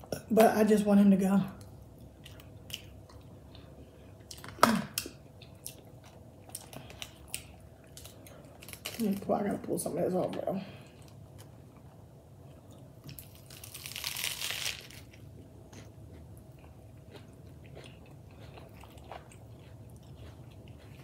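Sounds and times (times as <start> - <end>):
crisp crunch of biting: 13.1 - 15.9
quiet chewing with mouth clicks: 15.4 - 21.0.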